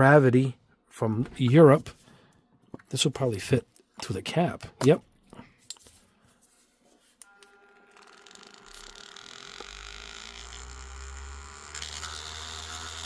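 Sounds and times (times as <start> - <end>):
paint shaker motor humming: 8.0 - 13.0.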